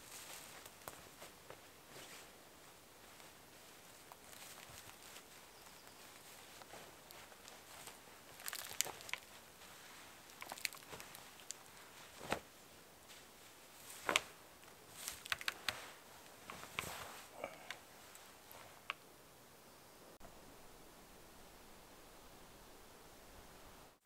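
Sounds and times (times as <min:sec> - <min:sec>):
hammock fabric rustling: 0:00.0 - 0:19.0
sharp clicks and crackles: 0:08.4 - 0:09.3, 0:15.0 - 0:15.8.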